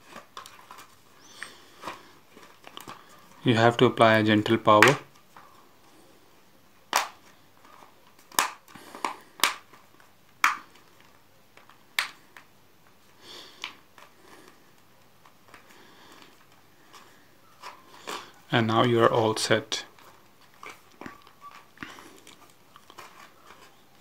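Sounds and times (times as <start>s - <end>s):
plastic handling rustle: 0.0s - 24.0s.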